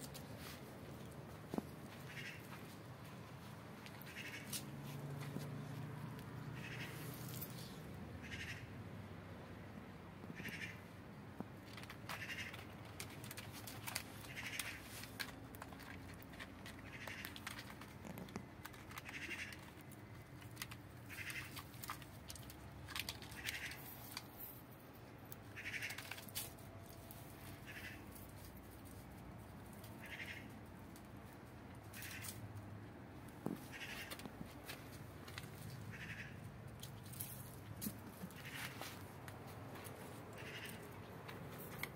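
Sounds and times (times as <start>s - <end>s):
light clicks and rustles: 11.4s - 30.0s, 36.7s - 41.9s.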